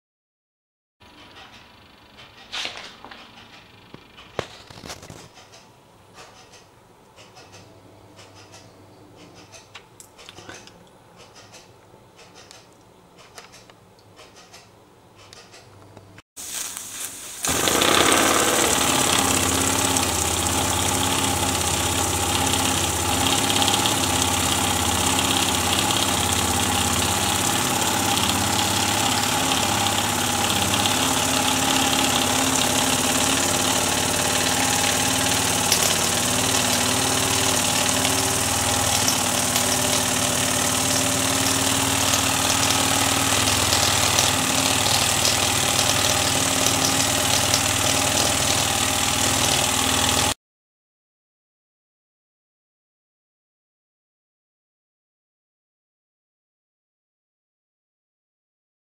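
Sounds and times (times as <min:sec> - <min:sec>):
model steam engine hissing: 0:16.5 - 0:50.4.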